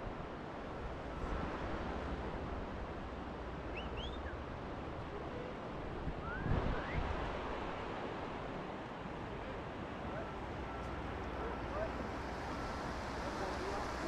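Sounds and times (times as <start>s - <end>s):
river water rushing: 0.1s - 14.0s
wind buffeting microphone: 5.7s - 8.7s.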